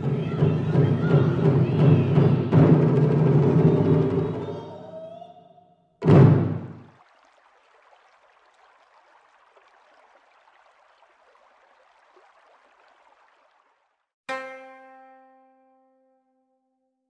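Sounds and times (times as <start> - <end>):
koto note plucked: 14.3 - 16.8.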